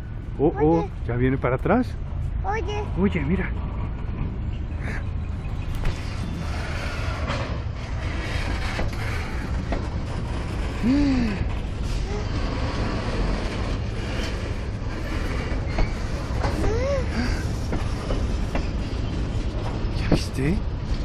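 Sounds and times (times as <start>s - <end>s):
freight train rumbling: 0.0s - 21.0s
wheel squeal: 5.8s - 16.8s.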